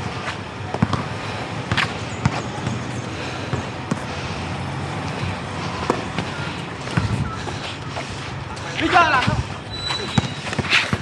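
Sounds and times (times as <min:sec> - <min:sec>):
background noise: 0:00.0 - 0:11.0
basketball bouncing on concrete: 0:00.7 - 0:04.1, 0:06.9 - 0:07.2, 0:10.0 - 0:11.0.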